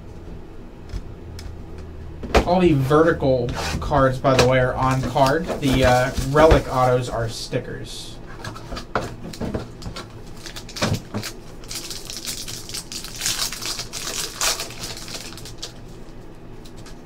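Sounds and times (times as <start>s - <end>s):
foil wrapper tearing and crinkling: 4.9s - 7.0s, 9.7s - 17.0s.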